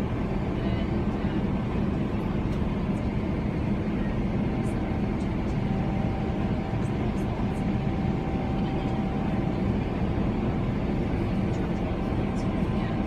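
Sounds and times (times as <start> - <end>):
airflow over fuselage: 0.0 - 13.0
jet engine roar in cabin: 0.0 - 13.0.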